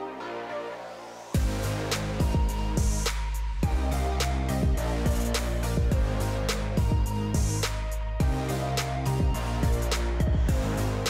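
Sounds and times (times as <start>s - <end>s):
music with sustained notes: 0.0s - 11.0s
steady drum beat: 1.4s - 8.5s.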